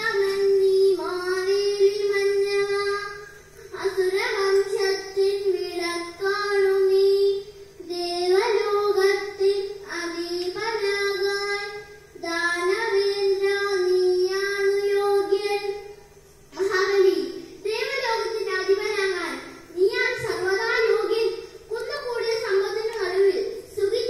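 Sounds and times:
girl singing into a microphone: 0:16.6 - 0:24.0.

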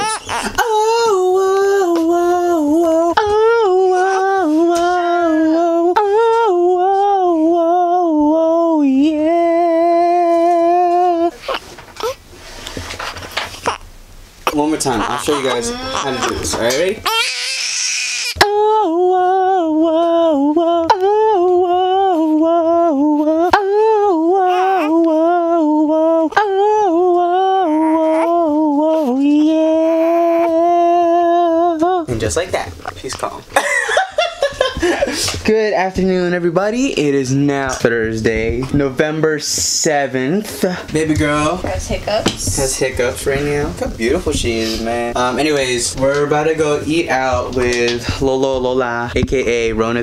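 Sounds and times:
person humming a long note: 0:18.4 - 0:31.8.

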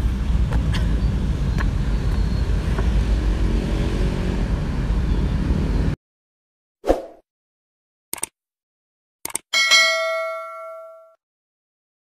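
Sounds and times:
road traffic rumble: 0:00.0 - 0:06.0.

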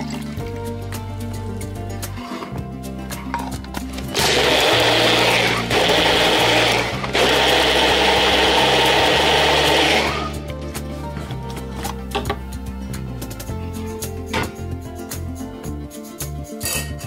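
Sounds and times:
blender pulsing: 0:04.1 - 0:10.4.

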